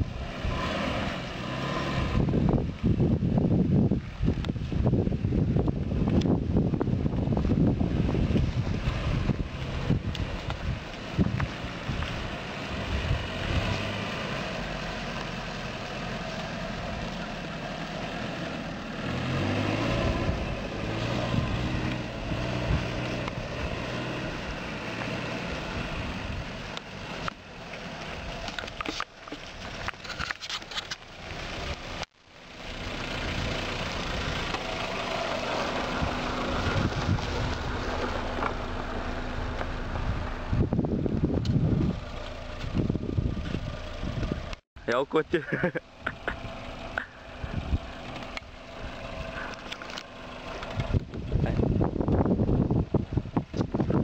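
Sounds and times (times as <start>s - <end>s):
car engine revving: 0.0s - 3.7s, 4.8s - 30.3s, 30.9s - 44.6s, 45.4s - 54.0s
wind buffeting microphone: 1.9s - 14.7s, 18.3s - 26.8s, 35.8s - 44.6s, 47.1s - 49.7s, 50.5s - 54.0s
car engine idling: 2.2s - 54.0s.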